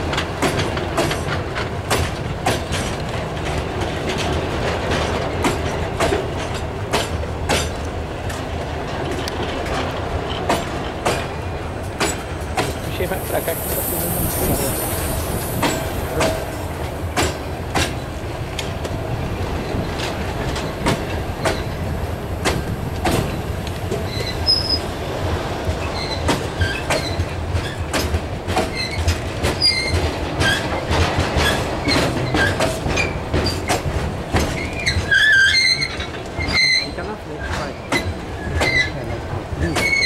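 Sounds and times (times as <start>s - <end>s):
steel wheels rumbling on rail: 0.0s - 40.0s
wheels clacking over rail joints: 0.0s - 40.0s
high-pitched wheel squeals: 24.1s - 24.8s.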